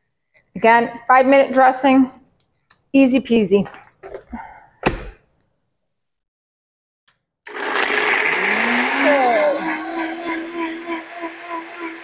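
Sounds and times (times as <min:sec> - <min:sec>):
blender motor running: 0:07.5 - 0:12.0.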